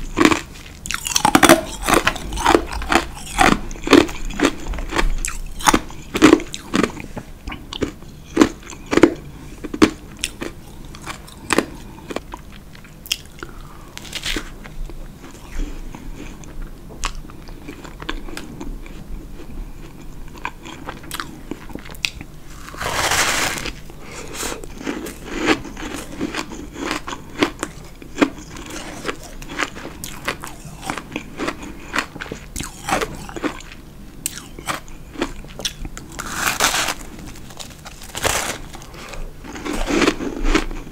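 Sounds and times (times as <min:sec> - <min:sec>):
chewing crunchy ice: 0:00.0 - 0:40.9.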